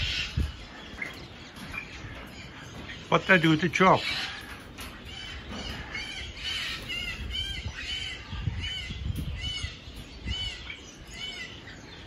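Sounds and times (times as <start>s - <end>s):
bird chirping: 0.0s - 12.0s.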